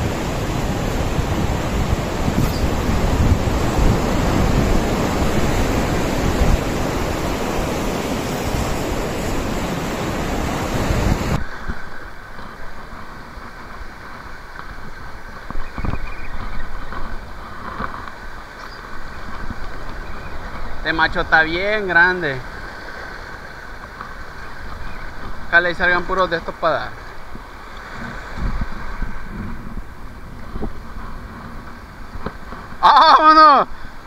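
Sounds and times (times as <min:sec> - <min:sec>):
waves washing over rocks: 0:00.0 - 0:15.7, 0:16.3 - 0:34.0
wind buffeting microphone: 0:00.0 - 0:32.8
surf on rocky shore: 0:00.0 - 0:34.0.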